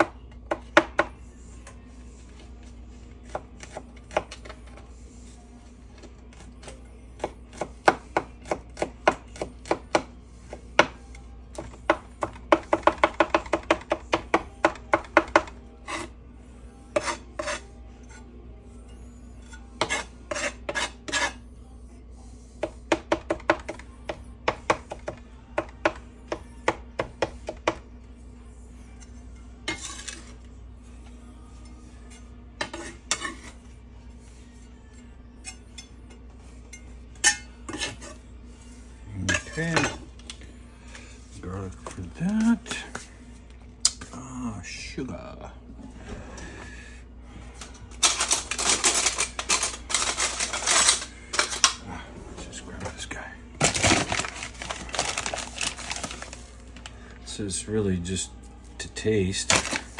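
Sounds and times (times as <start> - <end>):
knife chopping on wooden board: 7.2 - 15.5.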